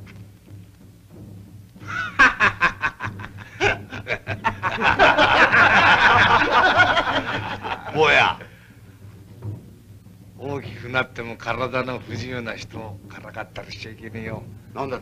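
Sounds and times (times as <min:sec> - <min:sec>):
men laughing: 0:01.8 - 0:08.5.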